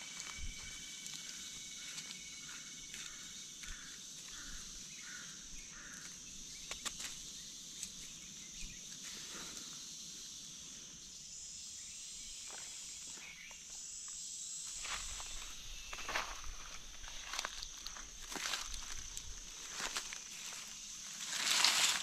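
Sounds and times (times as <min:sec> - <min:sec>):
footsteps on dry leaves: 0:00.0 - 0:04.5, 0:14.7 - 0:22.0
high-pitched insect drone: 0:00.0 - 0:22.0
higher insect trill: 0:00.0 - 0:22.0.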